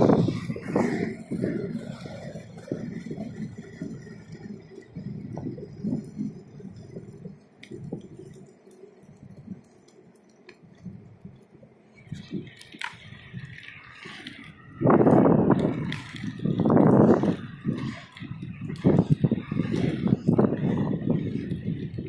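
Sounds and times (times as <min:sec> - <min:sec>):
small wheels rolling on asphalt: 0:00.0 - 0:22.0.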